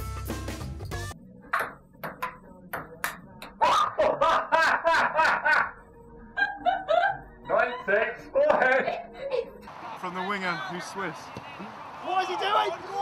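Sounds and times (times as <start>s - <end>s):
table tennis ball hits: 1.5s - 3.6s
loud laughter: 3.6s - 5.8s, 6.4s - 9.5s.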